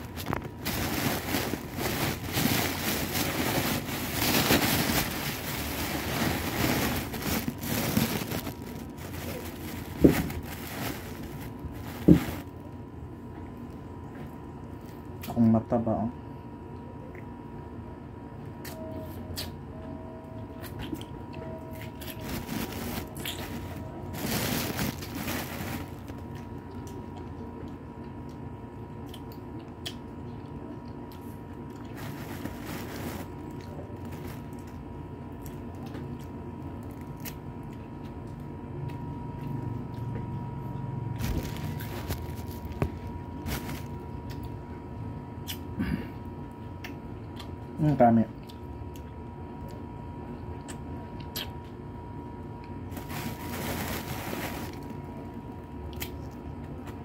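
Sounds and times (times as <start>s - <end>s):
rustling: 0.0s - 12.5s, 22.1s - 26.3s, 31.9s - 33.4s, 41.2s - 44.0s, 52.9s - 55.0s
faint steady hum: 0.0s - 57.0s
chewing and sucking fruit: 23.0s - 23.9s, 26.0s - 32.6s.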